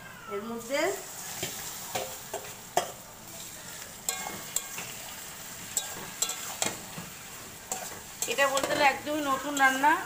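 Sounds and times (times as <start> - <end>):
food sizzling in hot oil: 0.3 - 10.0
spatula scraping a wok: 1.0 - 10.0.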